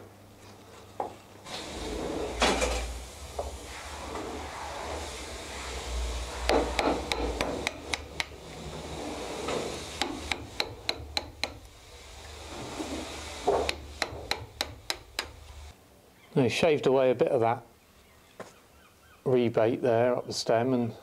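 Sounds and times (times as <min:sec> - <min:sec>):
hammer tapping a chisel: 0:06.5 - 0:08.4, 0:10.0 - 0:11.6, 0:13.7 - 0:15.4.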